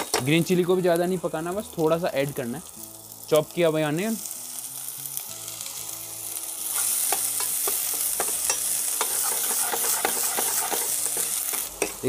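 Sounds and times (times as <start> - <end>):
vegetables sizzling in hot oil: 0.0 - 12.0
spatula scraping pan: 8.4 - 12.0.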